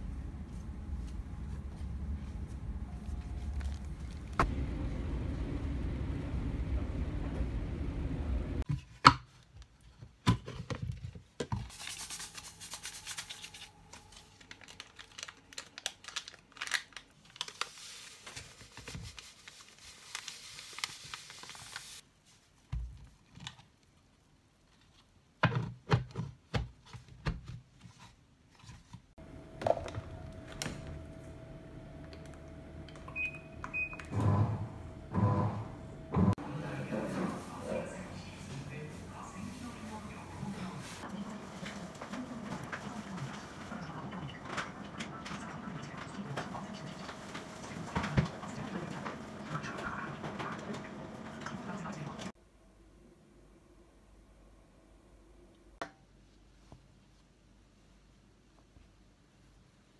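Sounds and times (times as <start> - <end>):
washing machine hum: 0.0 - 8.7, 29.2 - 52.4.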